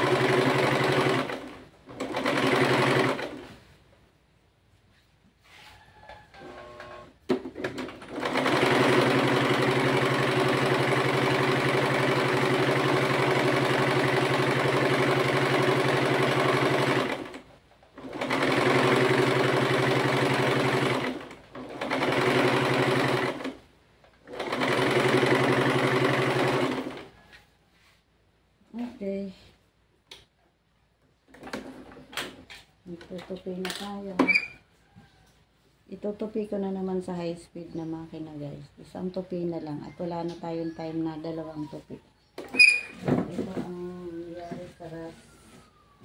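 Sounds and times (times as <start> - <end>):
sewing machine stitching: 0.0 - 3.6, 6.3 - 23.6, 24.2 - 27.1
click: 30.1 - 30.3.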